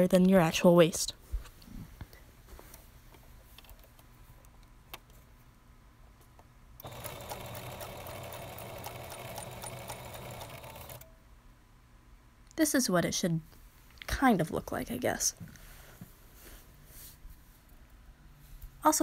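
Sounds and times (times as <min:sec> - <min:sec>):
sewing machine running: 0:06.8 - 0:11.1.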